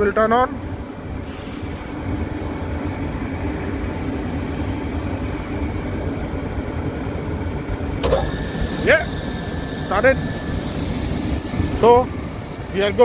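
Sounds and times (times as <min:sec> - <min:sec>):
hvac unit rumble and hum: 0:00.0 - 0:13.0.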